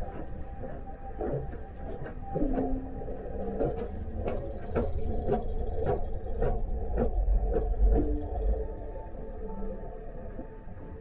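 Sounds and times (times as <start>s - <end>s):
ship engine low rumble: 2.4s - 11.0s.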